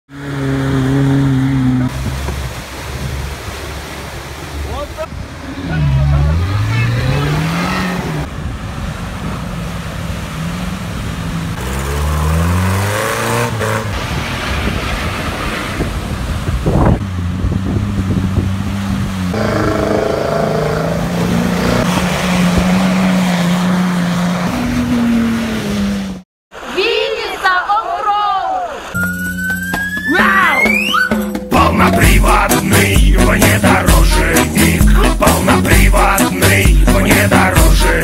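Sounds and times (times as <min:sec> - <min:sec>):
off-road engines revving: 0:00.1 - 0:26.2, 0:31.6 - 0:38.0
water splashing: 0:00.4 - 0:26.7.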